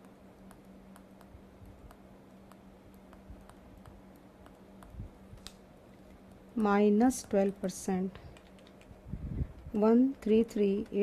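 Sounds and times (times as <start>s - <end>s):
low electrical hum: 0.0s - 11.0s
stylus tapping on drawing tablet: 0.4s - 5.0s.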